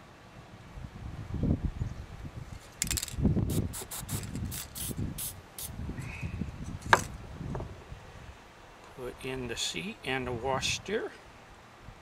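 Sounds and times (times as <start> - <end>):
aerosol spray hiss: 3.5 - 5.8.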